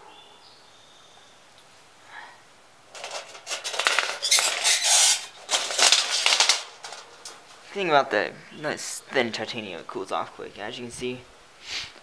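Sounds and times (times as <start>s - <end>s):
metal windscreen rattling: 2.9s - 7.7s.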